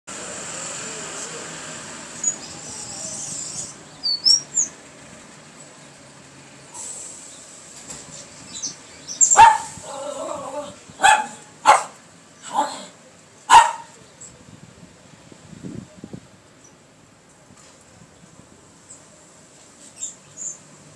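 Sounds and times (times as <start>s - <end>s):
dog barking: 9.3s - 9.8s, 10.5s - 12.9s, 13.5s - 14.0s.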